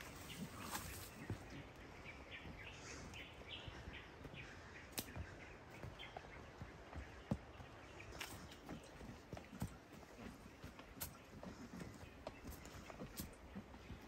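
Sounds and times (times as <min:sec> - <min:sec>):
bird chirping: 0:00.0 - 0:09.6.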